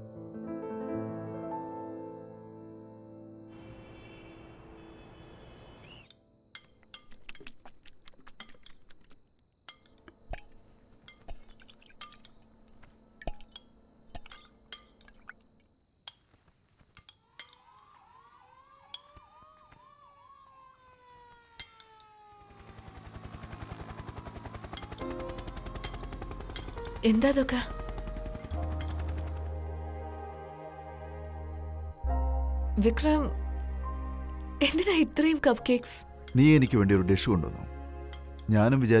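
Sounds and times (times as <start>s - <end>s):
distant police siren: 3.5s - 6.1s, 17.2s - 31.1s.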